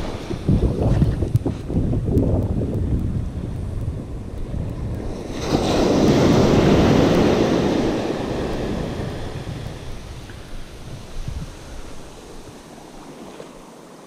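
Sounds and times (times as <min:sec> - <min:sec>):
small wave washing up sand: 0:04.6 - 0:14.0.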